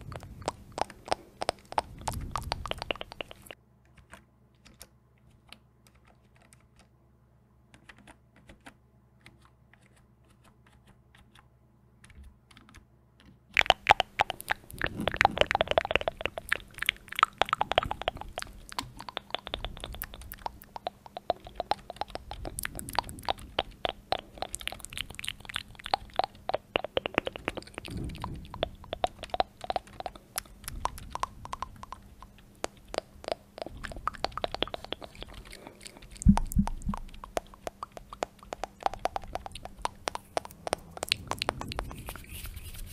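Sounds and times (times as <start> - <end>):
typing on computer keyboard: 0.8 - 6.9, 7.7 - 11.4, 12.0 - 35.6.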